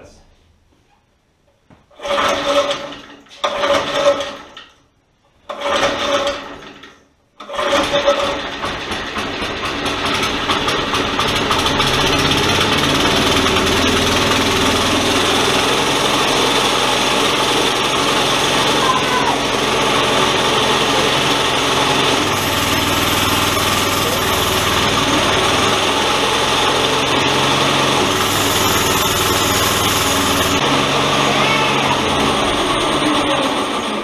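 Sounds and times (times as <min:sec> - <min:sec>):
recoil starter pulls: 0:01.9 - 0:04.8, 0:05.5 - 0:30.7
small engine running: 0:07.5 - 0:34.0.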